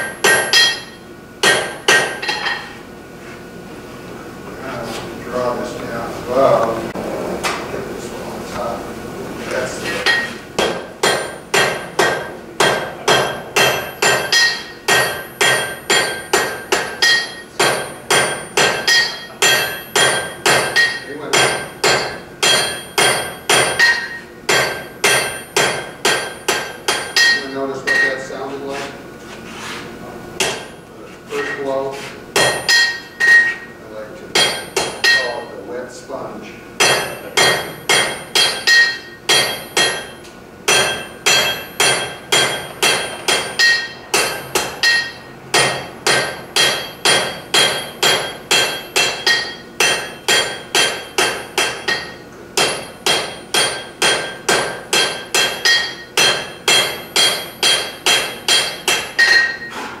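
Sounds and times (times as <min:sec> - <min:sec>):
hammer ringing on anvil: 0:00.0 - 0:02.7, 0:10.0 - 0:28.3, 0:32.4 - 0:33.8, 0:34.4 - 0:35.6, 0:36.8 - 0:59.8.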